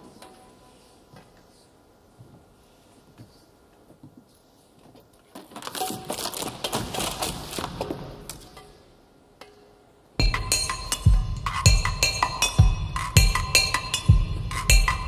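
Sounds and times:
loud music with heavy percussion: 10.2 - 15.0.

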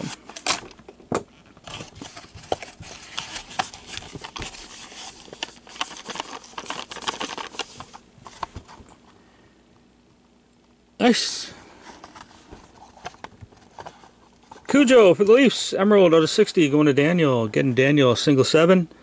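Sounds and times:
rustling and scraping cardboard: 1.5 - 9.0, 11.8 - 14.9.

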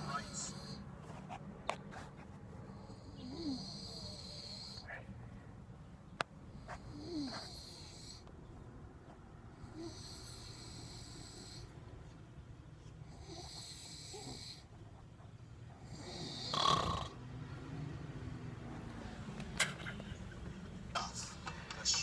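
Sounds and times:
man snoring: 3.0 - 4.9, 9.6 - 11.7, 13.1 - 14.7, 15.8 - 17.2.

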